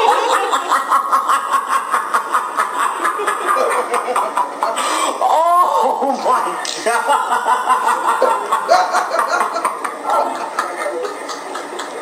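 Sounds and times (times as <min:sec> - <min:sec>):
men laughing hard: 0:00.0 - 0:04.8, 0:06.9 - 0:12.0.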